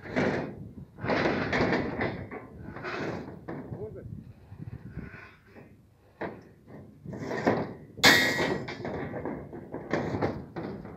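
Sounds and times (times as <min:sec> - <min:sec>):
steel bars knocking: 0:07.3 - 0:10.9
loud metallic clang: 0:08.0 - 0:08.8.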